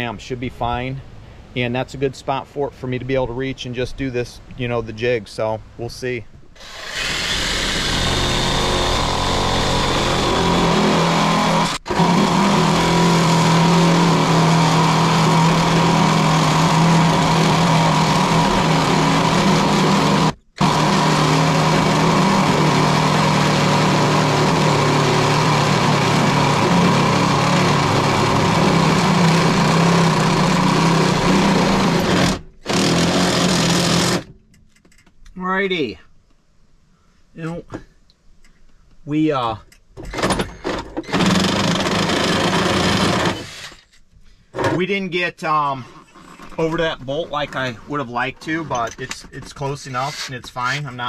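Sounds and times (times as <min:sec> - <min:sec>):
cordless drill boring metal: 0:06.6 - 0:34.3, 0:40.1 - 0:44.0, 0:49.8 - 0:50.4.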